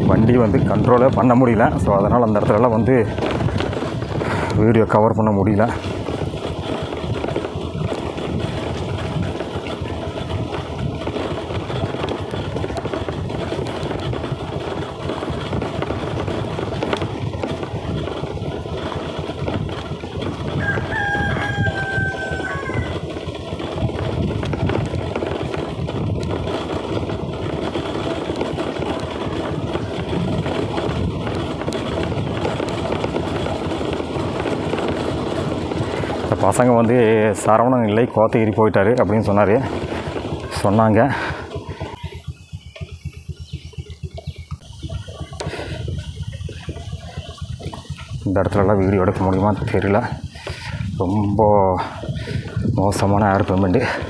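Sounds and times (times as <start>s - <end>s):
car engine and road noise: 0.0s - 53.8s
rooster crowing: 20.5s - 23.1s.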